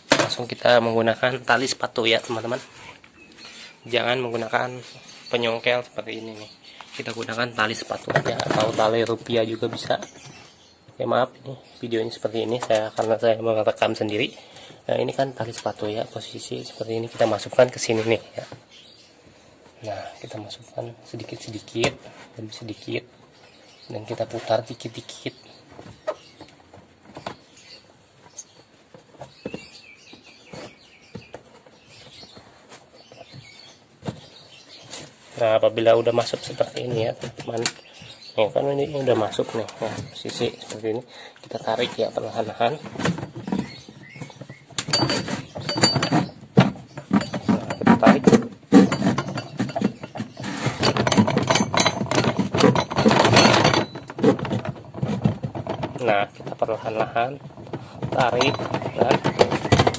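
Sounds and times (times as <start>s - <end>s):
plastic clattering and scraping: 0.0s - 10.7s, 21.2s - 59.9s
bird chirping: 0.0s - 59.9s
clicks and scrapes on plastic: 42.8s - 59.9s.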